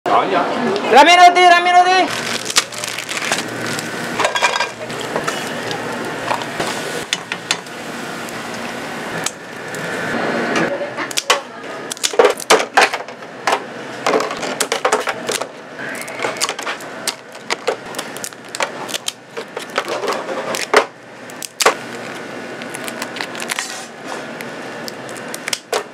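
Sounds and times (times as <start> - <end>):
utensils and dishes clattering: 2.2 - 7.6.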